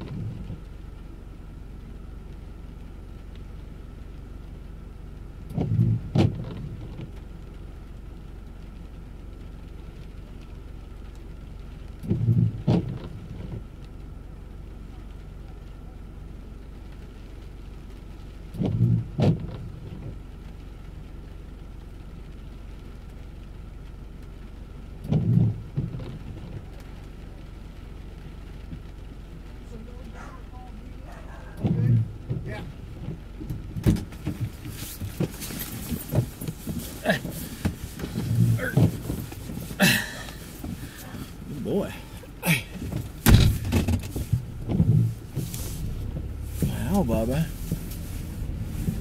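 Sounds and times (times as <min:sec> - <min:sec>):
car cabin hum: 0:00.0 - 0:49.0
windshield wipers thumping: 0:05.5 - 0:07.2, 0:12.0 - 0:13.7, 0:18.5 - 0:20.3, 0:25.0 - 0:27.0, 0:29.8 - 0:49.0.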